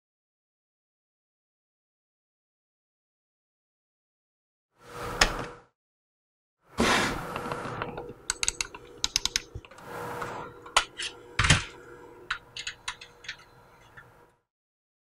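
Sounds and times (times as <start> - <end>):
mouse rubbing scrape: 6.8 - 7.8, 9.7 - 11.2.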